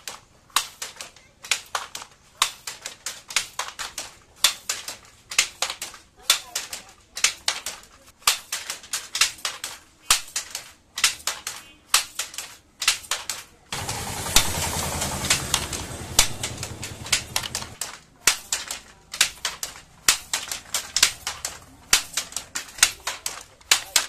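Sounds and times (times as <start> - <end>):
wooden handloom clacking: 0.0 - 24.0.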